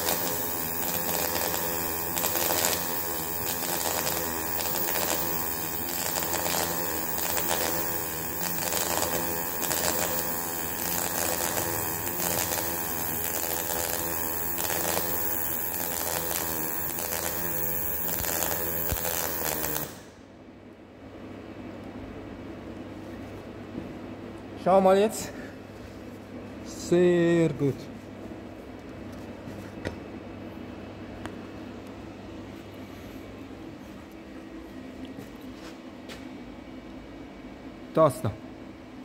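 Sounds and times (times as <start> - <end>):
welding arc crackling: 0.0 - 20.2
low workshop hum: 0.0 - 39.0.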